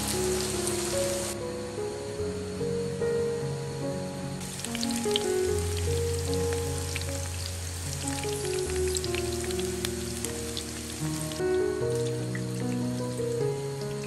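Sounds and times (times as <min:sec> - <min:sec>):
tofu deep-frying in hot oil: 0:00.0 - 0:01.4, 0:04.4 - 0:14.0
background music: 0:00.0 - 0:14.0.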